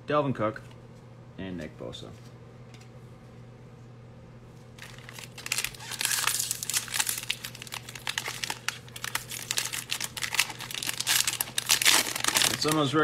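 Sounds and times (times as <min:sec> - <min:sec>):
foil wrapper crinkling: 0:04.8 - 0:13.0.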